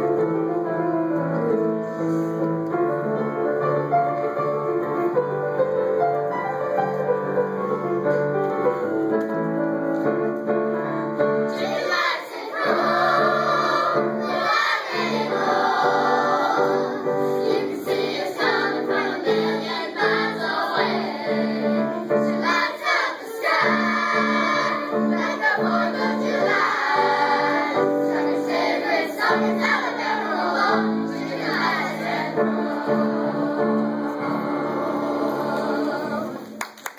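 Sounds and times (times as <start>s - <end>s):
piano accompaniment: 0.0s - 36.9s
children's choir singing: 11.3s - 36.6s.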